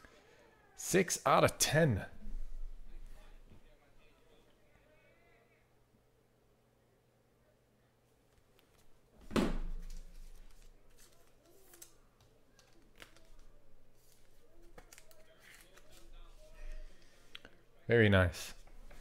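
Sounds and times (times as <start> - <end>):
plastic card sleeve clicks and rustles: 9.8 - 16.1.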